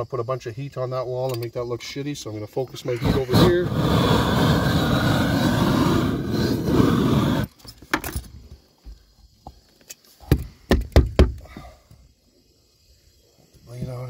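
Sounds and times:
roofing torch roaring: 0:03.0 - 0:07.5.

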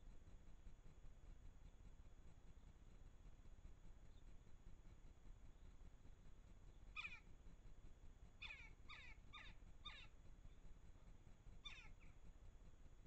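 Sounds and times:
faint downward sliding bird calls: 0:07.0 - 0:07.3, 0:08.4 - 0:10.1, 0:11.6 - 0:12.2.

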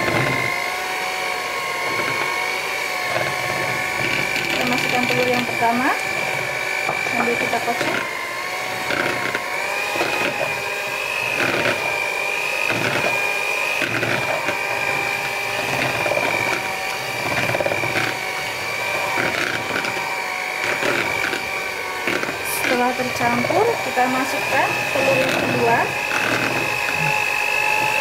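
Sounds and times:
electric hand mixer whine: 0:00.0 - 0:28.0.

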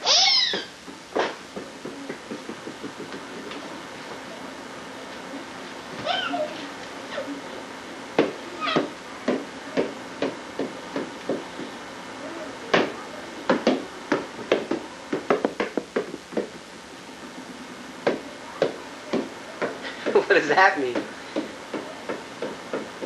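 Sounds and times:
knocks on tiled floor: 0:00.5 - 0:03.5, 0:12.7 - 0:16.6.

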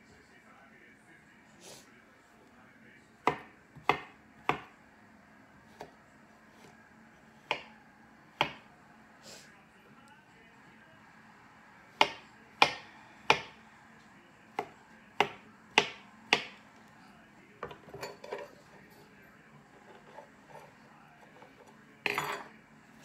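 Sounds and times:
knife chopping onto wooden table: 0:03.2 - 0:04.7, 0:08.4 - 0:08.7, 0:12.0 - 0:13.6.

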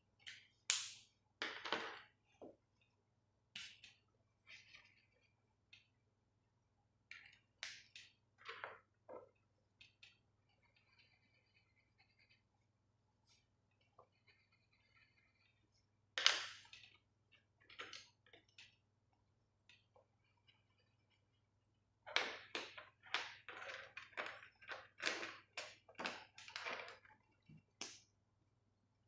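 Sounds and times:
plastic markers clattering: 0:07.1 - 0:12.4, 0:16.2 - 0:18.8, 0:22.0 - 0:28.0.

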